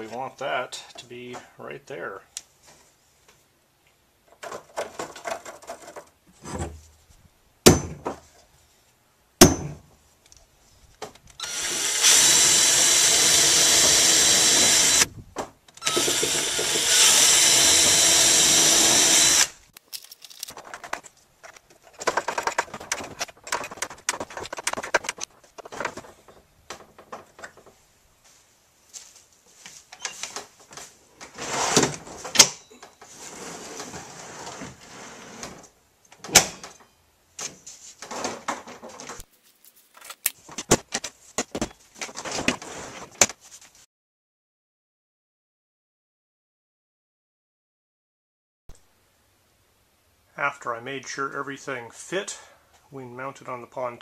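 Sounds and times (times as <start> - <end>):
cordless drill whining into wood: 11.4 - 15.1, 15.8 - 19.6.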